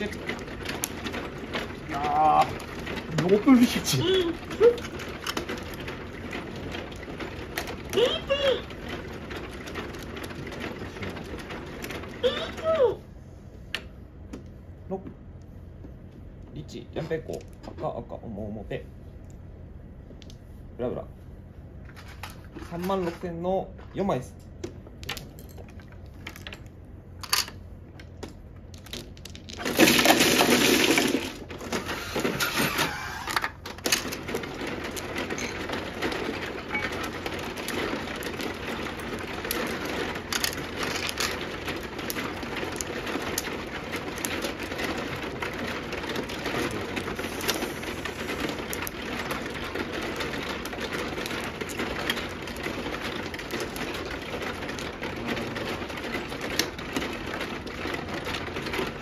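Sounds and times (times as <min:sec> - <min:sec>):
mahjong tiles clicking and clacking: 0:00.0 - 0:12.8, 0:24.6 - 0:59.0.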